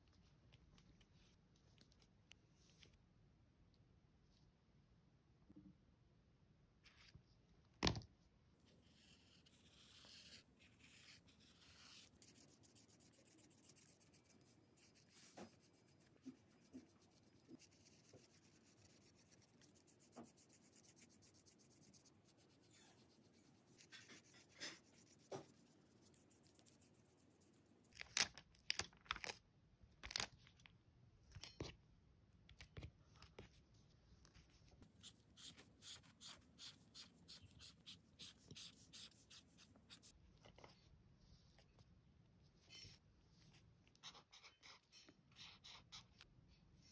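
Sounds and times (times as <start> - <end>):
pen scratching on paper: 9.0 - 26.9, 34.3 - 40.7, 42.6 - 46.2.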